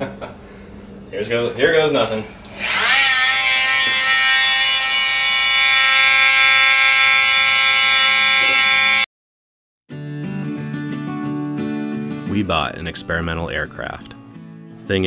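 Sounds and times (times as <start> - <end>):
oscillating tool cutting plastic: 2.5 - 9.1.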